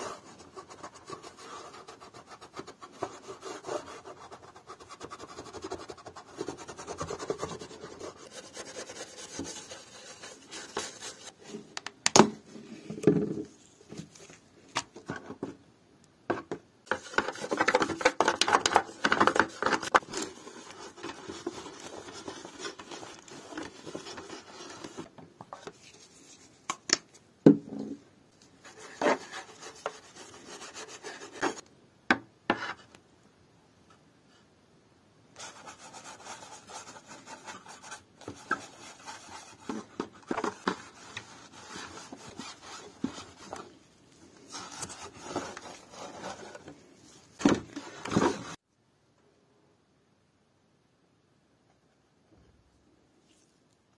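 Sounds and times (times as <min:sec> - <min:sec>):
cloth rubbing on plastic: 0:35.4 - 0:43.8.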